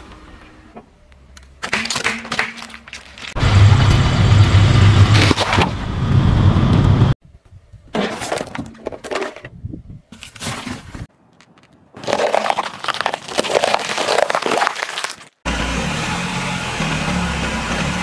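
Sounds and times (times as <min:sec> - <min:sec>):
peppers crunching under tyre: 0:11.2 - 0:15.4
metal tin crumpling under tyre: 0:11.4 - 0:15.4.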